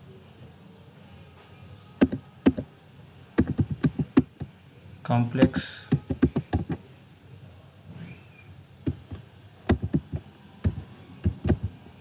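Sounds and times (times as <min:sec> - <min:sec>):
computer keyboard typing: 0:02.0 - 0:02.7, 0:03.4 - 0:04.5, 0:05.4 - 0:06.8, 0:08.9 - 0:11.8.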